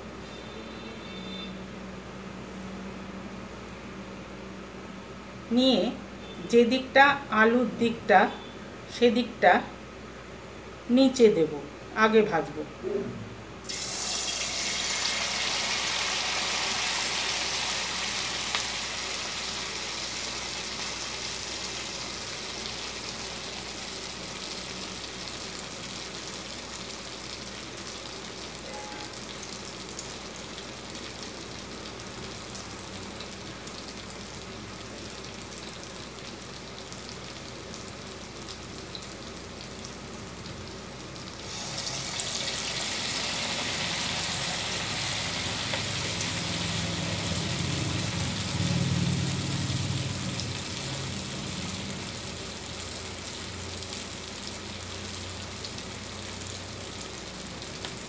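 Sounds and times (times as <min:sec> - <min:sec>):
food sizzling in hot oil: 0:13.6 - 0:58.0.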